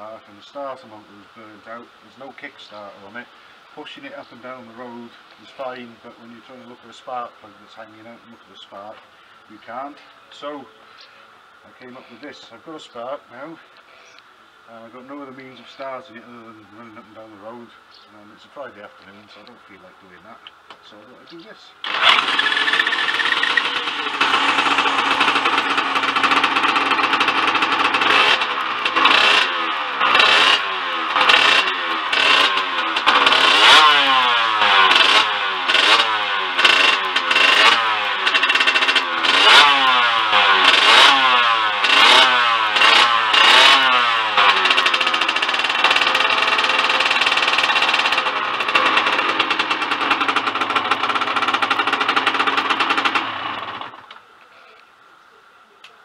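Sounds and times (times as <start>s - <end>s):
two-stroke motorcycle engine revving: 21.8s - 54.1s.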